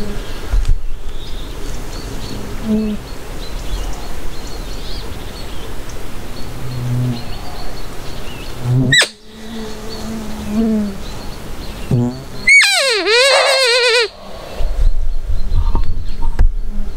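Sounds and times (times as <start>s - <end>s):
small birds chirping: 1.1s - 16.4s
flies buzzing: 8.6s - 14.2s.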